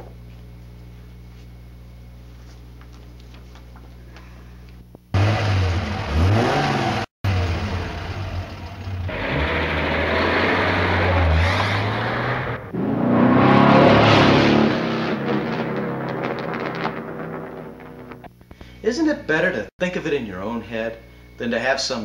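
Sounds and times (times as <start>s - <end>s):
pickup truck engine revving: 5.1s - 18.3s.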